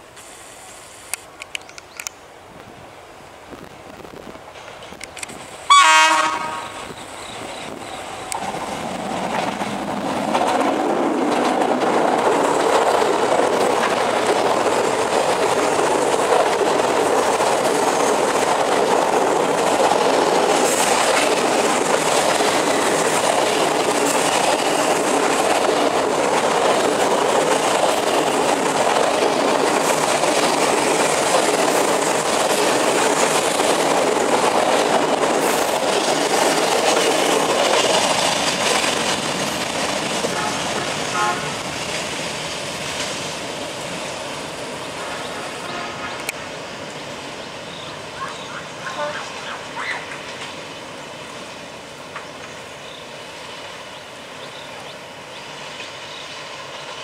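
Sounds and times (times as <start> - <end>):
locomotive horn blast: 5.7 - 6.9, 40.3 - 41.6, 45.6 - 46.3, 48.9 - 49.4.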